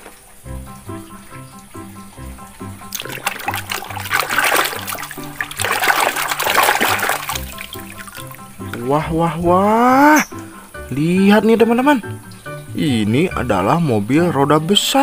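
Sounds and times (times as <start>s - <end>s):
water splashing in basin: 0.0s - 9.0s
background music: 0.0s - 15.0s.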